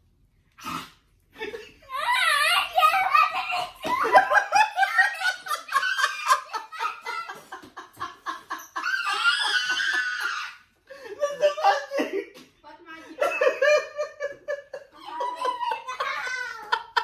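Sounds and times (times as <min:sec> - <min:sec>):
girl and man laughing: 0:02.8 - 0:12.4, 0:13.2 - 0:17.0.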